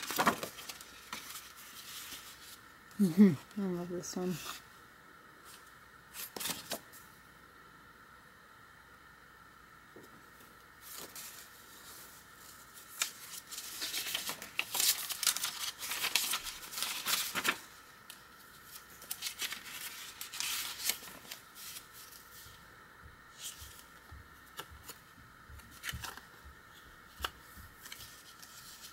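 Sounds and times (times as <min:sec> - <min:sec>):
paper pages rustling: 0:00.0 - 0:02.6, 0:05.4 - 0:07.0, 0:10.4 - 0:22.6, 0:23.3 - 0:25.0, 0:25.6 - 0:28.9.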